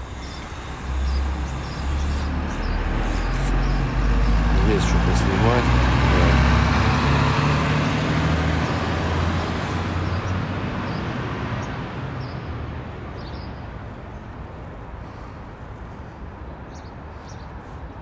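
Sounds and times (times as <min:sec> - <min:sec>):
faint street traffic: 0:00.0 - 0:18.0
coach engine running: 0:03.9 - 0:07.6.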